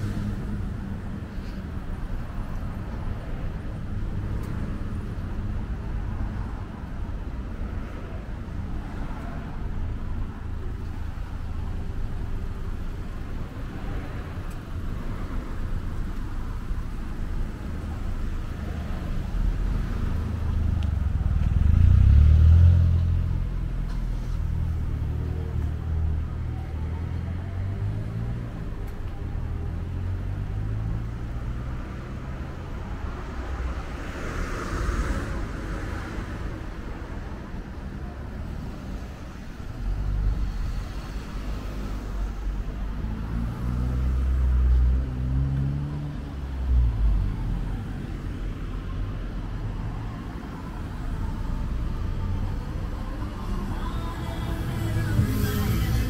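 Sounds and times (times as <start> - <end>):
tyre noise and low rumble: 0.0 - 26.3
cars driving past: 0.0 - 56.0
vehicle engine accelerating: 19.5 - 24.8, 50.6 - 56.0.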